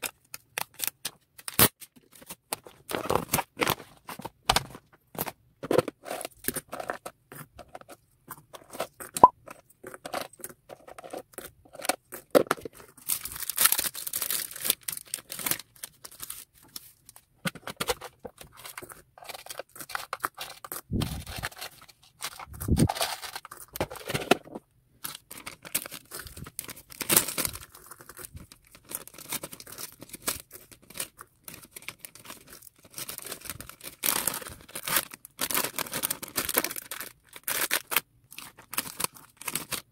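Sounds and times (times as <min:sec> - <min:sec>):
tape tearing: 0:00.6 - 0:01.9
plastic bags crinkling: 0:12.3 - 0:39.9
paper envelope rustling: 0:17.5 - 0:30.0.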